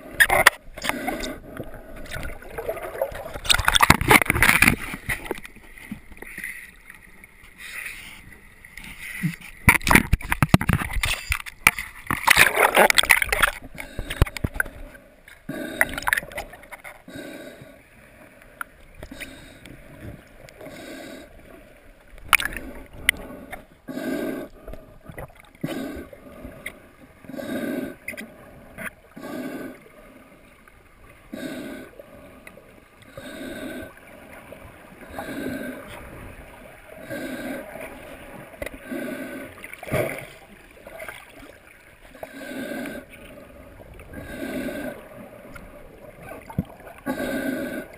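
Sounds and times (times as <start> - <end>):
muffled underwater water rushing: 0.0 - 47.9.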